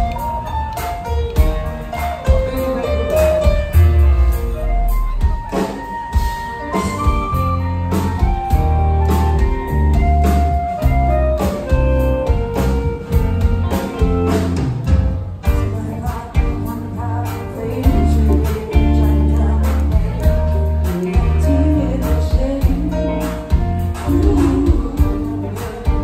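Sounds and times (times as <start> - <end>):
bass: 0.0 - 5.7, 6.6 - 26.0
melody of held notes: 0.0 - 15.7
drum kit beat: 0.0 - 26.0
electric guitars: 0.0 - 26.0.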